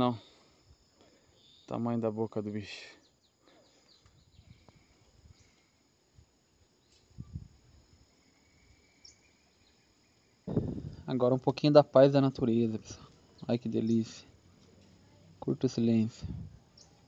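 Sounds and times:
high-pitched insect calls: 0:00.0 - 0:17.0
bird calls: 0:08.5 - 0:10.8
soft low thumps: 0:10.5 - 0:11.1.

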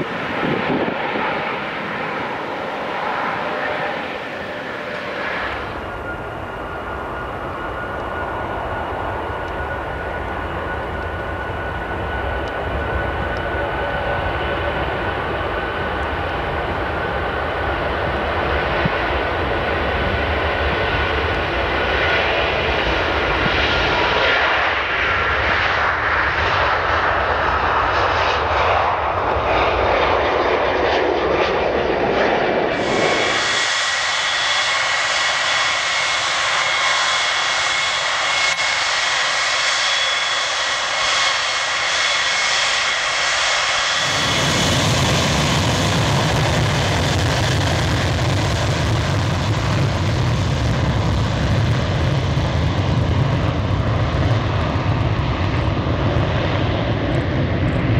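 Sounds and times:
jet engine noise: 0:00.0 - 0:57.9
jet engines whining: 0:00.0 - 0:57.9.

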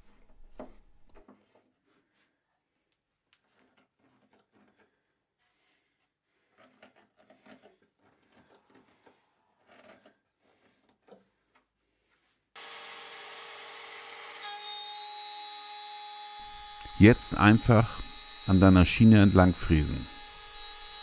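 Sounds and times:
router running: 0:12.6 - 0:21.0.

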